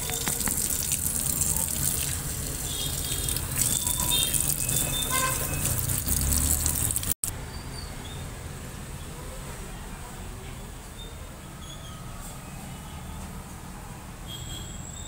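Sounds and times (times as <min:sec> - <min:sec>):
tap water splashing into a metal sink: 0:00.0 - 0:07.2.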